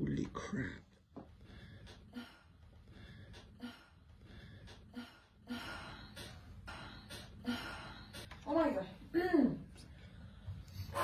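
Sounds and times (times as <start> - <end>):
woman gasping and breathing heavily: 1.4 - 8.3.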